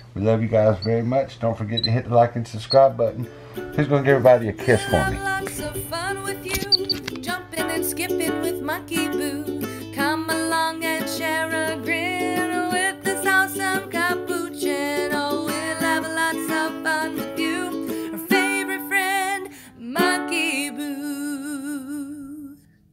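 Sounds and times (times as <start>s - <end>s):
plucked strings: 2.8s - 21.0s
person singing: 4.1s - 22.7s.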